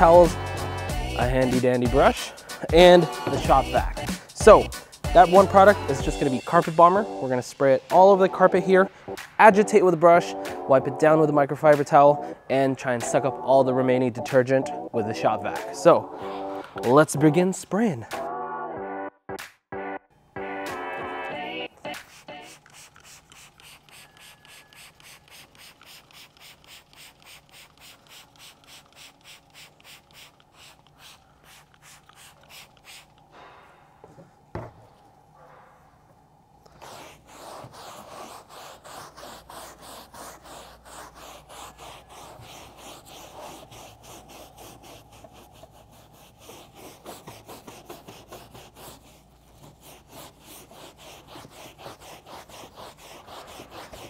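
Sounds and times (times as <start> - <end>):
hand brush scrubbing carpet: 1.3 - 6.8, 21.9 - 33.2, 36.7 - 54.0
trigger spray bottle spritzing: 21.9 - 33.3.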